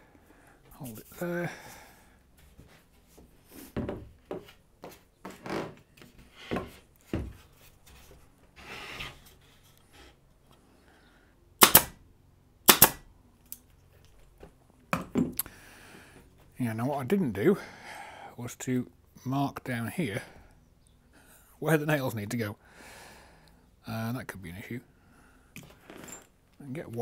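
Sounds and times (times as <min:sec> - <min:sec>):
plywood knocking on workbench: 0:03.8 - 0:04.5.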